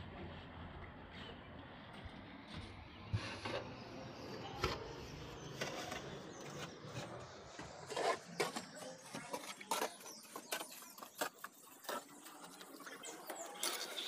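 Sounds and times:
trowel scraping mortar: 5.4 - 14.0.

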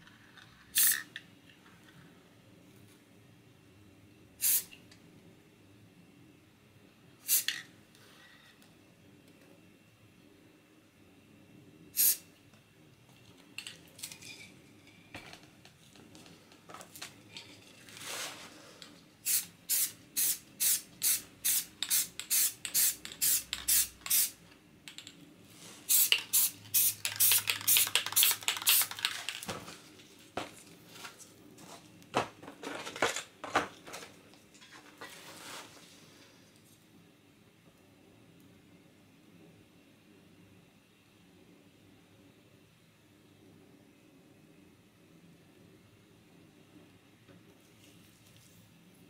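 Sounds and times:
spray can hissing bursts: 0.7 - 1.1, 4.4 - 4.7, 7.2 - 7.5, 12.0 - 12.2, 19.2 - 24.4, 25.9 - 29.4.

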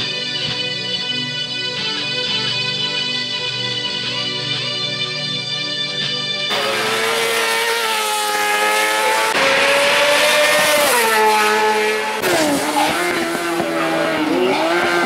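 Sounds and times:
racing motorcycle engines revving: 6.5 - 15.0.

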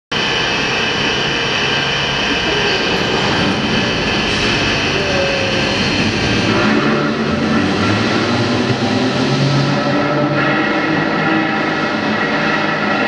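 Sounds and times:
bridge machinery rumbling: 0.1 - 13.0
machinery whine: 0.1 - 13.0.

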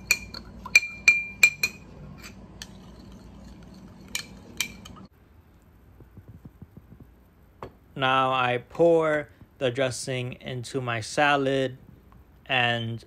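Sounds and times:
spoon clinking against glass dish: 0.0 - 5.0.

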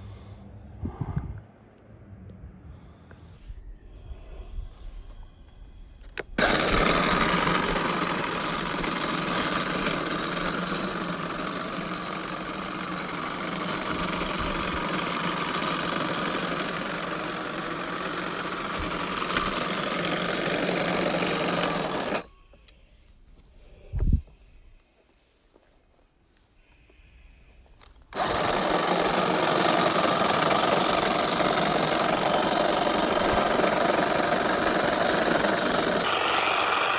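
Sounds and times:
electric hedge trimmer buzzing: 6.4 - 22.3, 28.1 - 36.9.

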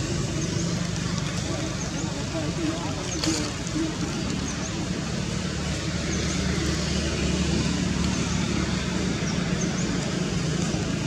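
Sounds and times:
distant road traffic: 0.0 - 11.0.

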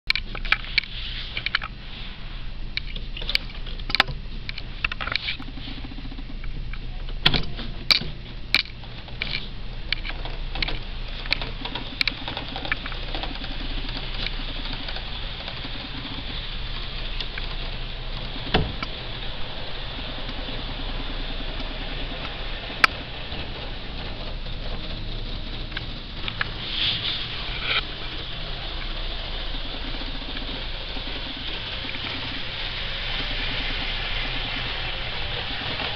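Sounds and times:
model train rattling on track: 8.6 - 35.9.

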